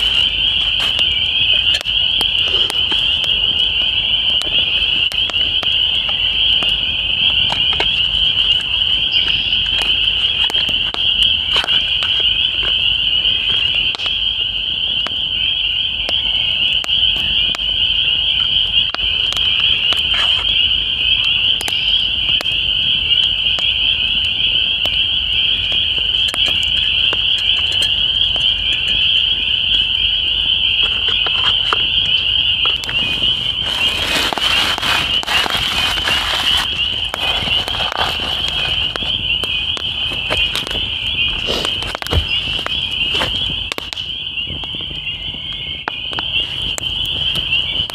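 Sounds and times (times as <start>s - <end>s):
campfire crackling: 0.0s - 47.9s
frogs calling: 0.0s - 47.9s
rustle: 33.0s - 38.9s.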